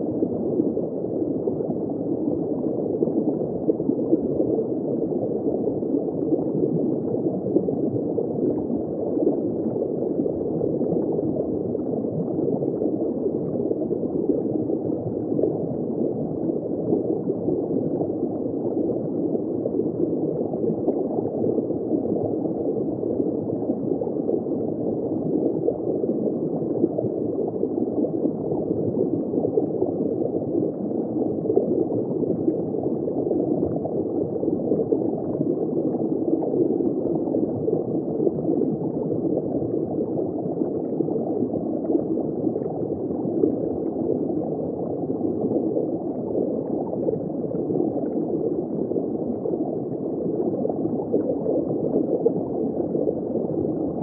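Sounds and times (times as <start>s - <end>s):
aquarium water gurgling: 0.0s - 54.0s.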